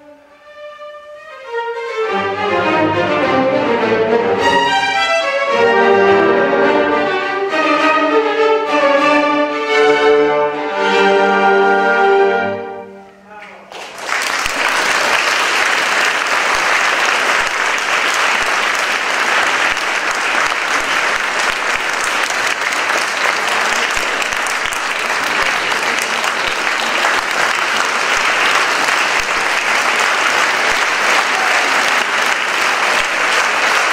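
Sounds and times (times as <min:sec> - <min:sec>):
audience applauding: 0:13.4 - 0:33.9.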